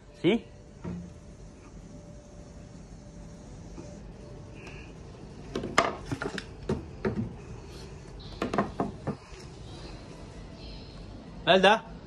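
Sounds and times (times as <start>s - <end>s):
wooden panel knocking against frame: 8.4s - 9.2s.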